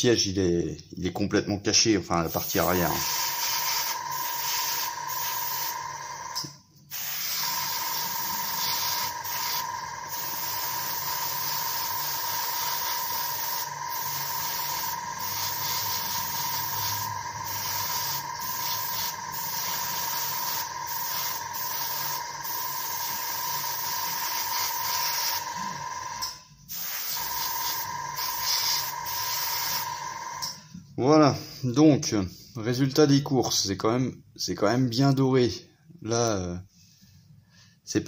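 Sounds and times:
airbrush spraying hiss: 2.3s - 6.1s, 6.9s - 30.5s.

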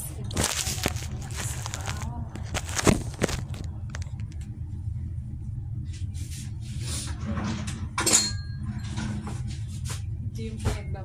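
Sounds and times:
steady low hum: 0.0s - 11.0s
ceramic clink ringing: 8.2s - 8.6s.

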